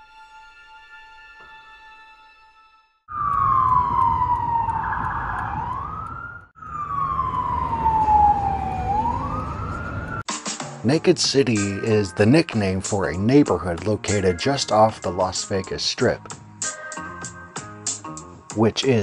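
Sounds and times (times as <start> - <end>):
city traffic rumble: 3.1 - 10.3
police siren wailing: 3.1 - 10.3.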